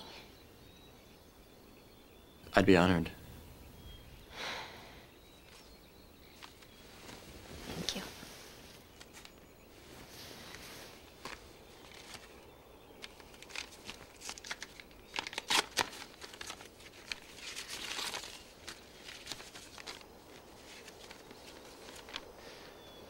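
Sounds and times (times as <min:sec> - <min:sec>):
paper crinkling and ripping: 0:13.0 - 0:22.3
paper tearing: 0:14.2 - 0:18.4.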